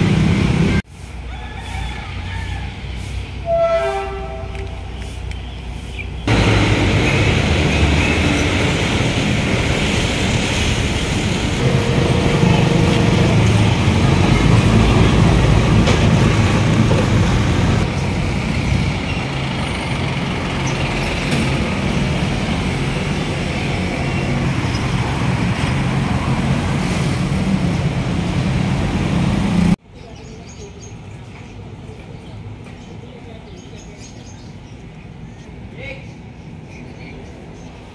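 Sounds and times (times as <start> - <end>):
steady road noise: 0.0 - 37.9
motorcycle engines passing: 6.2 - 29.8.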